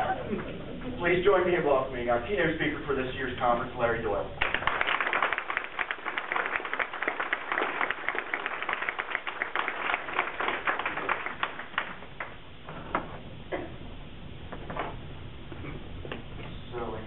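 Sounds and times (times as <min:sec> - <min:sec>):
audience applauding: 0:04.4 - 0:12.4.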